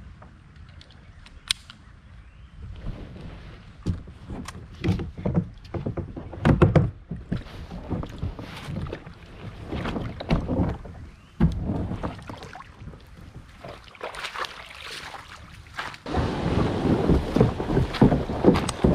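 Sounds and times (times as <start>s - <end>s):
plastic kayak hull knocking: 3.8s - 9.0s, 16.2s - 18.9s.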